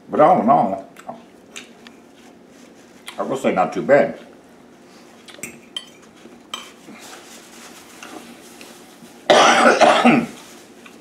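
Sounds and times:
man coughing: 9.3s - 10.4s.

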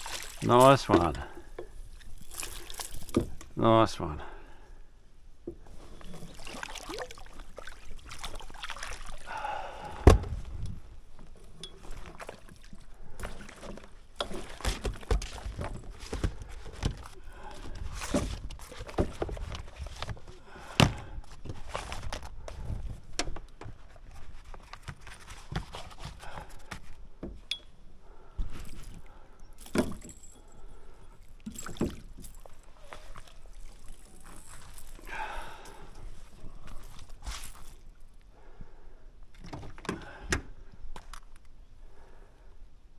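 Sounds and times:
water splashing: 0.0s - 1.3s, 1.9s - 3.4s, 6.2s - 9.4s.

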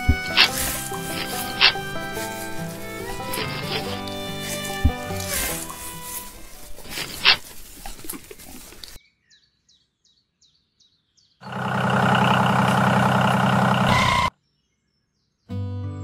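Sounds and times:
music: 0.0s - 7.4s, 15.5s - 16.0s
small diesel engine running: 0.0s - 7.4s, 11.4s - 14.3s.

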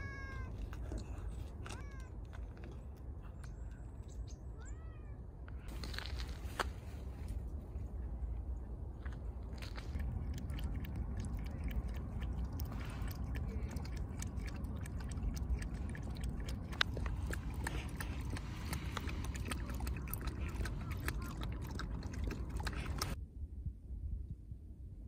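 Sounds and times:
low steady rumble: 0.0s - 25.0s
cat lapping milk: 9.6s - 23.2s.

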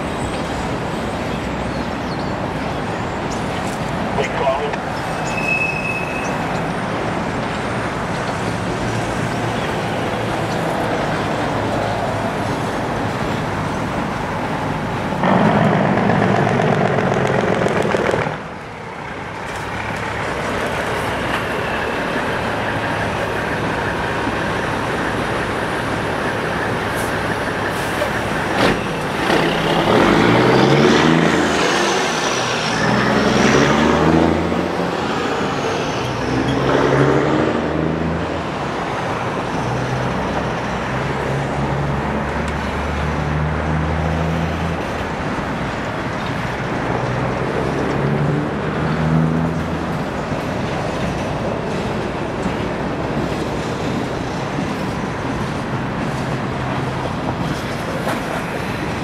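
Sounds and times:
train wheels rumbling on rails: 6.2s - 41.8s, 44.7s - 59.0s
engine revving: 15.2s - 18.5s, 28.5s - 38.4s.

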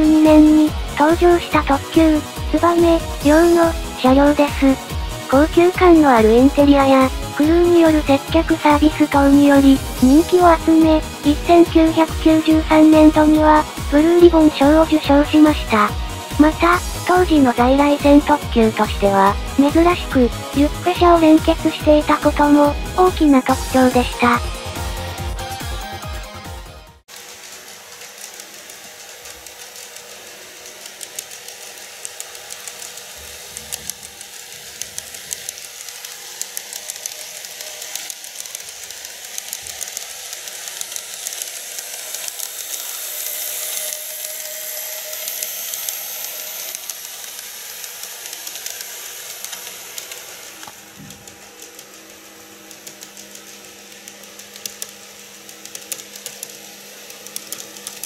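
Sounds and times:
model train whirring: 0.0s - 58.0s
rapid light clicking: 27.1s - 58.0s.

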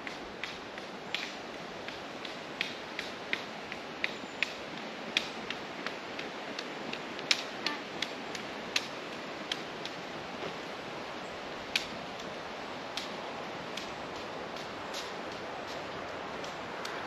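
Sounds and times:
steady hiss: 0.0s - 17.0s
footsteps on stony path: 10.4s - 10.8s.

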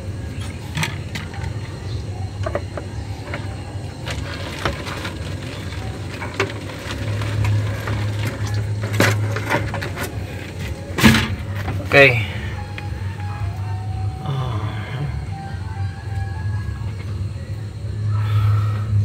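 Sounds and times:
steady low hum: 0.0s - 19.0s
fuel sloshing in a bottle: 2.4s - 12.2s.

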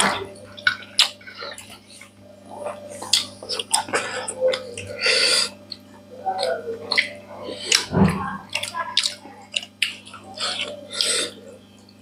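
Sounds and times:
people chewing and lip smacking: 0.0s - 12.0s.

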